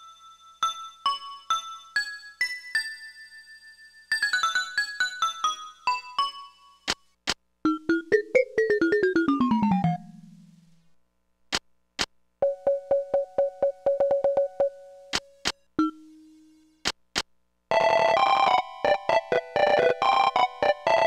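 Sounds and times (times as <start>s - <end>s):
mini keyboard playing: 7.6s - 10.6s, 12.4s - 16.6s, 17.7s - 21.0s.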